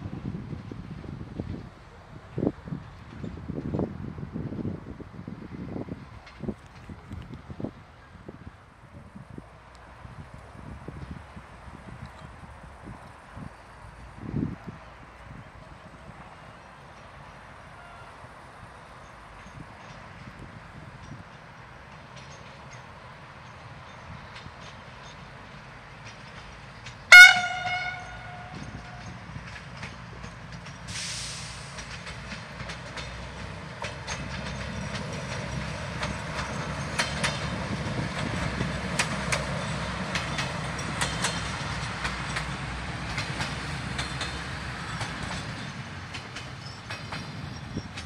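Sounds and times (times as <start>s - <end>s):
diesel engine rumbling: 0.0s - 48.0s
train wheels clicking over rail joints: 18.6s - 48.0s
train horn blast: 27.1s - 29.2s
brief hiss: 30.9s - 31.9s.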